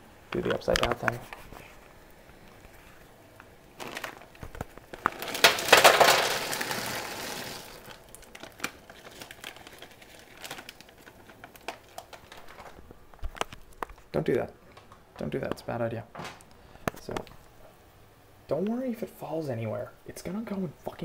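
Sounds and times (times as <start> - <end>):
small crackles and clicks: 0.3 - 15.6
plastic bag crinkling: 3.7 - 15.0.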